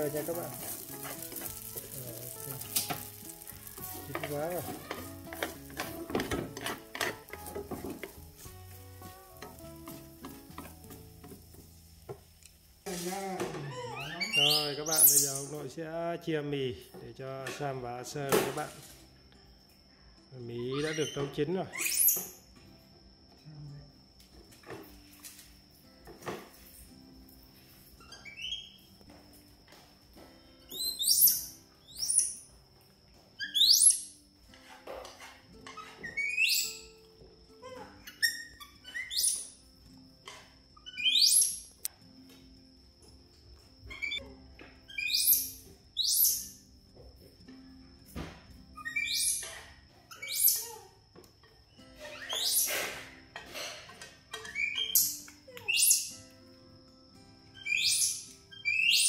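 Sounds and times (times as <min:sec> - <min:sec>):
chopsticks scraping a frying pan: 0:00.0 - 0:11.6
faint background music: 0:00.0 - 0:59.0
monkey squealing: 0:13.7 - 0:15.4, 0:20.7 - 0:22.4, 0:30.8 - 0:32.4, 0:33.4 - 0:34.0, 0:35.7 - 0:36.8, 0:37.6 - 0:39.5, 0:40.8 - 0:41.6, 0:44.9 - 0:46.5, 0:48.8 - 0:49.5, 0:50.1 - 0:50.8, 0:52.0 - 0:52.8, 0:54.5 - 0:56.1, 0:57.6 - 0:59.0.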